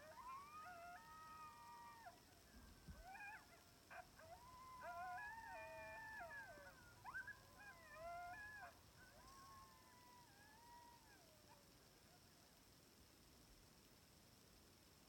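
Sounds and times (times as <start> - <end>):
distant wolves howling: 0.0 - 11.6.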